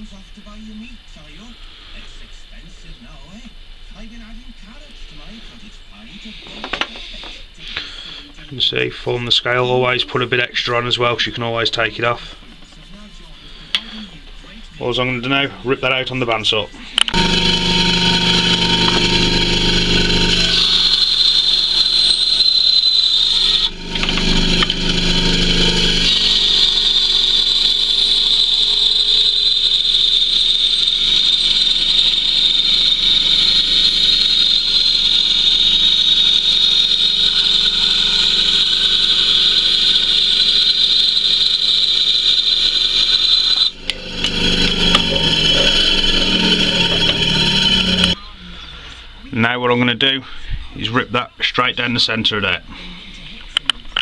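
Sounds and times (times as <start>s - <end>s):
bandsaw cutting wood: 17.1s - 48.2s.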